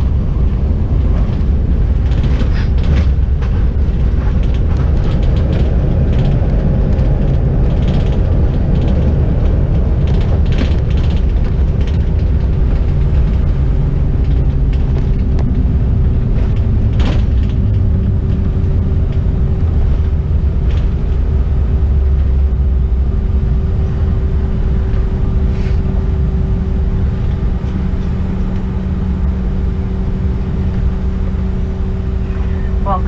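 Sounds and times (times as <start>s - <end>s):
jet engines idling: 0.0s - 33.0s.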